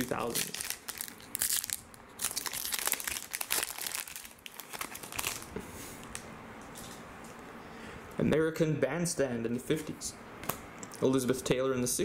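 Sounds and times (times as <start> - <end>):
plastic wrapper tearing and crinkling: 0.0 - 5.5.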